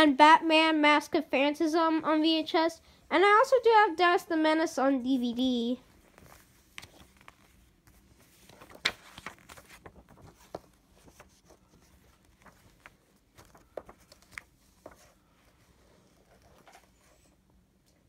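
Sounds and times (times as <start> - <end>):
paper leaflet rustling and clicking: 6.2 - 17.1.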